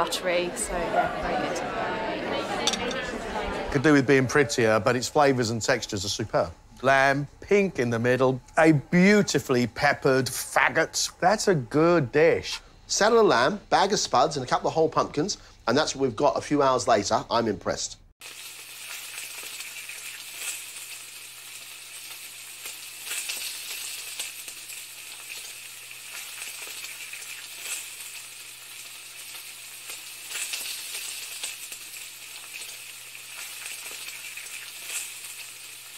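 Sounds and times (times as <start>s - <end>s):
food sizzling in a pan: 18.2s - 35.9s.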